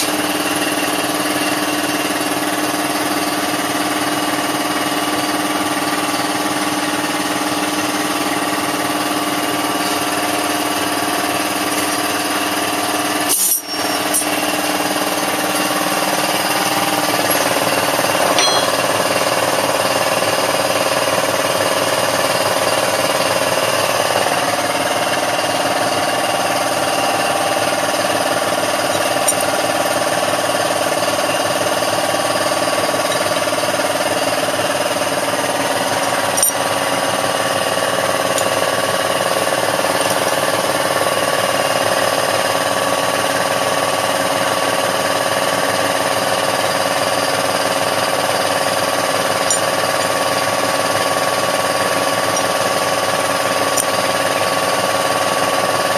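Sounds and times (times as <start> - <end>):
pneumatic tool buzzing: 13.3 - 19.1
mid-pitched tone: 18.2 - 18.9.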